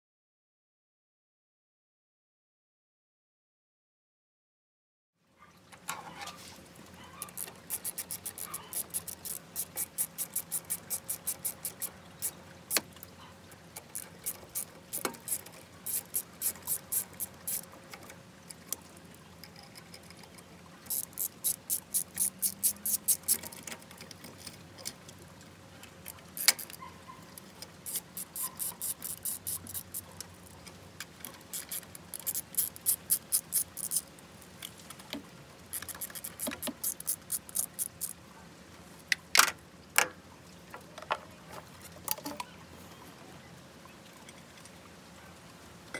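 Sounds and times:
ratchet wrench clicking: 7.2s - 12.8s, 13.8s - 17.7s, 20.9s - 23.6s, 26.4s - 26.8s, 27.8s - 30.1s, 31.5s - 34.1s, 35.7s - 38.2s
tool clicking on metal: 7.2s - 12.9s, 13.8s - 18.2s, 19.5s - 25.0s, 26.1s - 34.1s, 35.7s - 38.2s.

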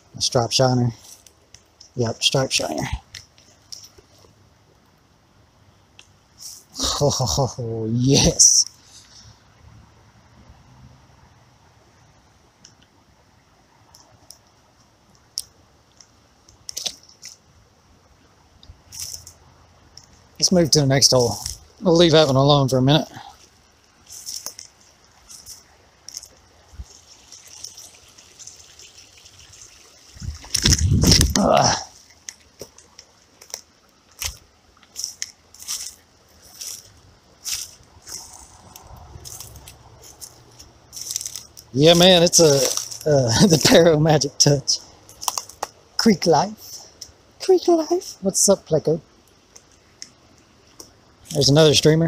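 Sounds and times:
faint steady background: 0.0s - 52.0s
clicks and crunches of handling: 15.2s - 17.4s, 23.4s - 26.4s, 30.4s - 43.8s, 45.1s - 45.8s.

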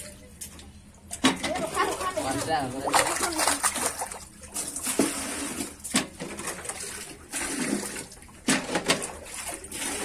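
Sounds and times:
water splashing from buckets: 1.0s - 10.0s.

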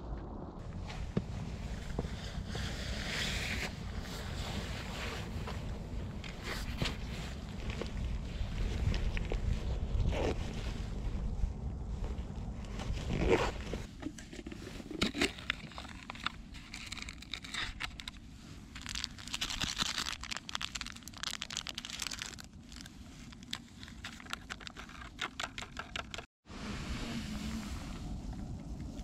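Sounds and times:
wind on microphone: 0.0s - 13.9s
plastic sachet crinkling and tearing: 15.4s - 26.1s.

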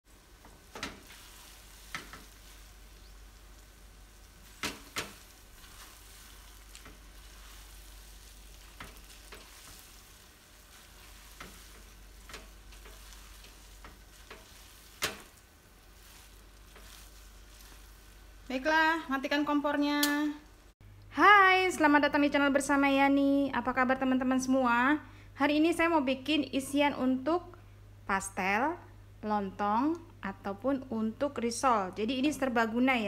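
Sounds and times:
faint frying sizzle: 0.0s - 25.0s
spatula scraping a wok: 0.6s - 18.5s.

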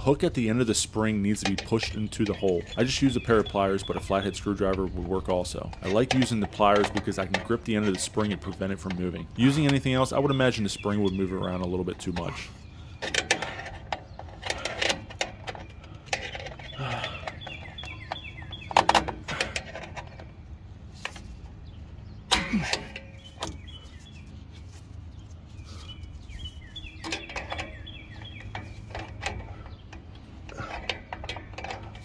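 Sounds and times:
birds chirping: 0.0s - 32.0s
metal clicks and clinks: 27.0s - 32.0s.

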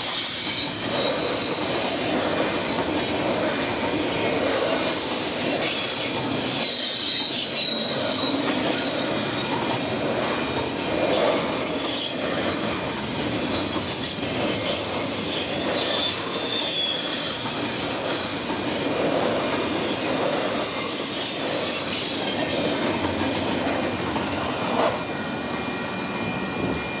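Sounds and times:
train wheels rumbling on rail: 0.0s - 27.0s
faint wheel squeal: 4.8s - 9.6s, 11.2s - 22.8s.

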